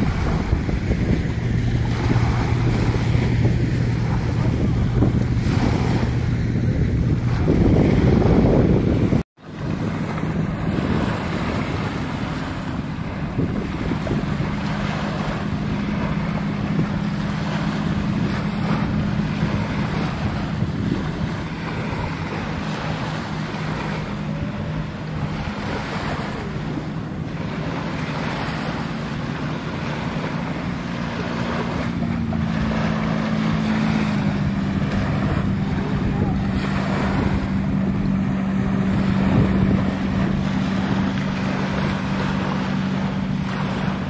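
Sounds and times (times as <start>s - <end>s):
small waves lapping on a beach: 0.0s - 44.0s
steady low hum: 0.0s - 44.0s
wind buffeting the microphone: 0.0s - 44.0s.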